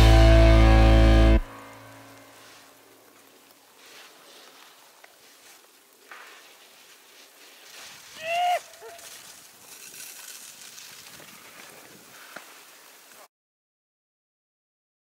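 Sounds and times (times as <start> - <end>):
skis scraping over snow: 2.3 - 13.3
person whooping: 8.1 - 9.1.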